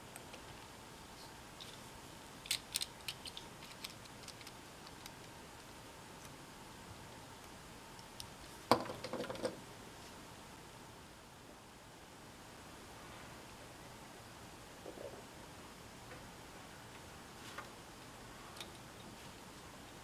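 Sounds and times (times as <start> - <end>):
plastic parts clicking: 2.4 - 5.2.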